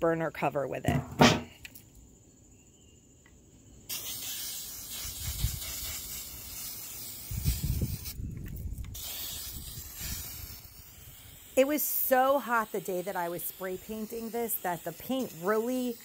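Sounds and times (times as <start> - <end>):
aerosol spray can hissing: 3.9 - 8.2, 8.9 - 16.0.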